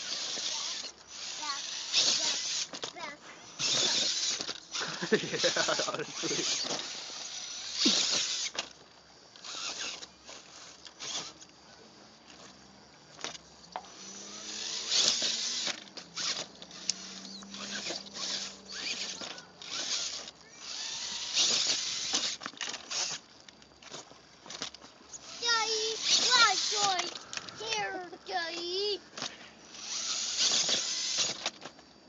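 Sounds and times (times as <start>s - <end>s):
electric motor whir: 0.0s - 31.8s
tyres scrabbling on stone: 14.6s - 31.8s.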